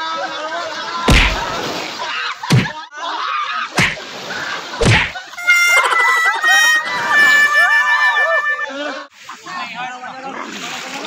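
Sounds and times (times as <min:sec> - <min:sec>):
loud whacks with deep low end: 0:01.1 - 0:01.6, 0:02.5 - 0:02.7, 0:03.8 - 0:04.0, 0:04.8 - 0:05.2.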